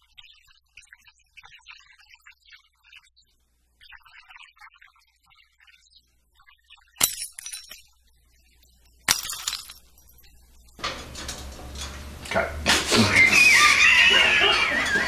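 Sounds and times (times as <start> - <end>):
dishes smashing: 7.0 - 7.9, 9.1 - 10.4.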